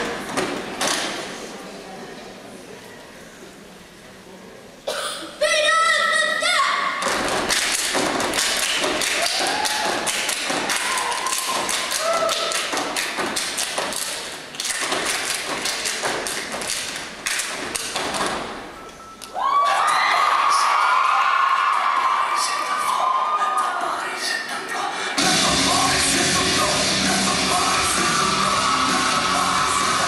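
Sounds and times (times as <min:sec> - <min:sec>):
stomps on wooden stage: 0:07.0 - 0:09.1
claps and body slaps: 0:07.0 - 0:18.4.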